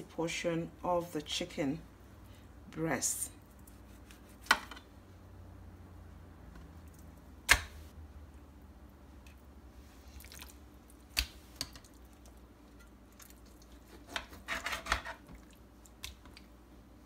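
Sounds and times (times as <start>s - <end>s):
wet squishing and slapping of meat: 10.1s - 12.4s.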